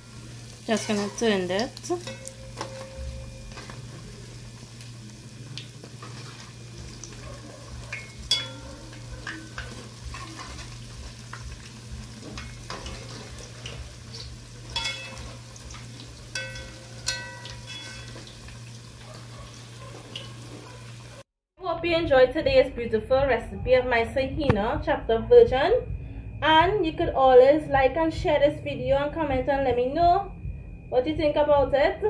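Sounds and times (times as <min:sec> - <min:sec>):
fritters sizzling in hot oil: 0:00.0 - 0:21.3
spatula scraping a metal pot: 0:07.9 - 0:10.9
steady low hum: 0:22.0 - 0:31.9.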